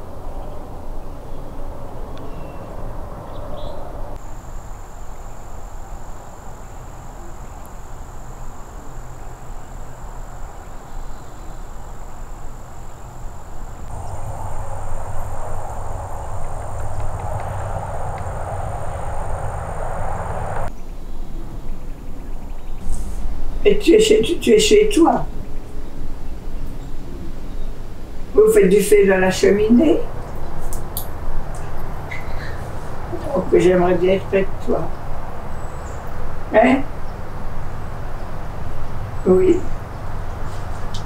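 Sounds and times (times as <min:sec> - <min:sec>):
higher drone: 0:00.0 - 0:20.7
high-pitched drone: 0:11.5 - 0:20.7
low rumble: 0:13.8 - 0:20.7.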